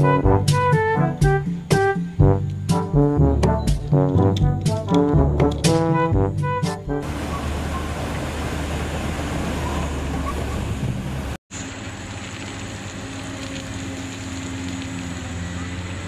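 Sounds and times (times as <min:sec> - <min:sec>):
brass music: 0:00.0 - 0:07.8
excavator diesel engine: 0:07.0 - 0:16.0
high whine of excavator digging: 0:07.0 - 0:16.0
water pouring over a weir: 0:11.5 - 0:16.0.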